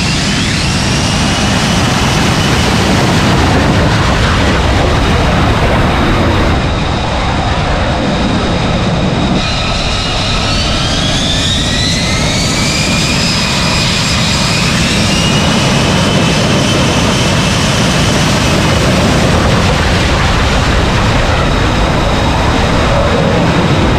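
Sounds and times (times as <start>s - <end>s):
high turbine whine: 0.0s - 23.9s
jet engines running: 0.0s - 23.9s.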